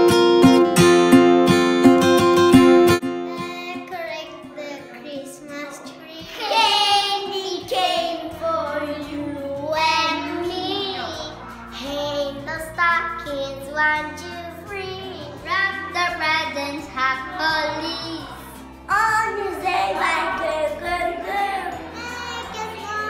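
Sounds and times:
boys singing together: 0:06.2 - 0:11.9, 0:14.0 - 0:23.0.

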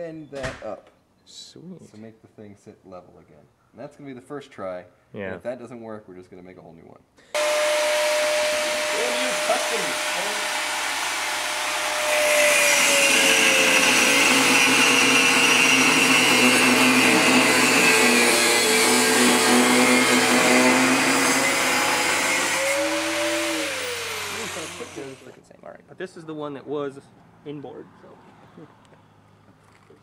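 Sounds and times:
angle grinder cutting steel: 0:07.4 - 0:25.3.

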